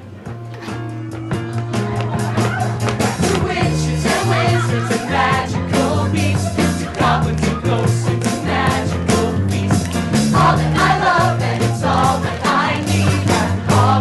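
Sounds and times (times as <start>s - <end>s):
cast singing rock song: 3.0s - 14.0s.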